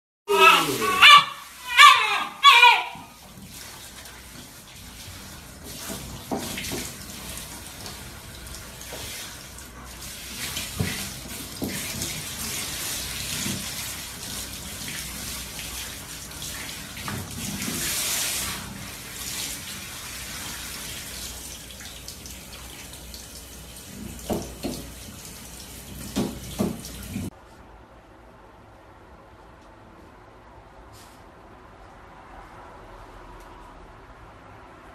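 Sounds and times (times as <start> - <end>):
shower spraying water: 0.3 - 27.3.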